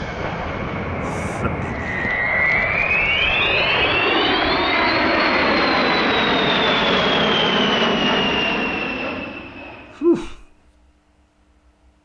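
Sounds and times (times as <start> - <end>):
jet engines roaring: 0.0 - 10.0
high-pitched jet whine: 0.0 - 10.5.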